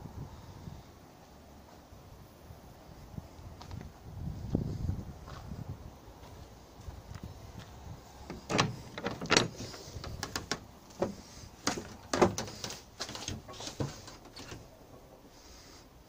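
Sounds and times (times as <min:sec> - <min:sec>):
wooden door and latch knocking: 0:08.3 - 0:14.6.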